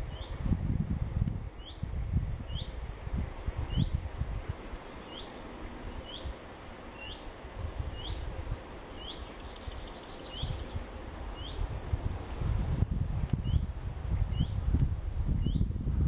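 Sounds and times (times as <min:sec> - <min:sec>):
wind rumble on microphone: 0:00.0 - 0:16.0
songbird calling rising note: 0:04.8 - 0:07.3, 0:07.9 - 0:08.3, 0:08.9 - 0:12.5
bird trill: 0:06.0 - 0:07.3, 0:09.0 - 0:12.4.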